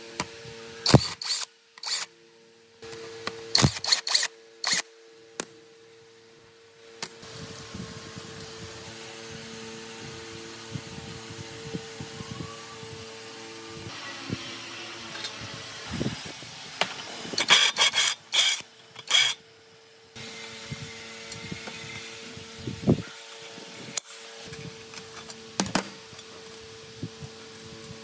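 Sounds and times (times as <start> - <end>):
steady hum: 0.0 - 28.0
metal-on-metal scraping: 17.4 - 19.4.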